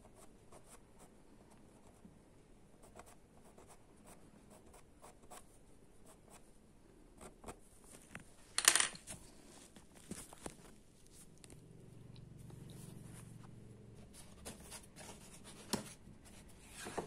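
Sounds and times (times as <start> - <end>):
pencil scratching on paper: 2.8 - 6.4, 14.0 - 17.0
pencil scuff: 16.6 - 17.0.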